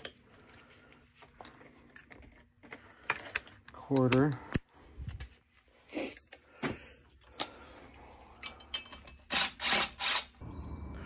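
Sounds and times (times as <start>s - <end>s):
tools and metal parts clicking: 1.3s - 4.6s, 8.4s - 9.6s.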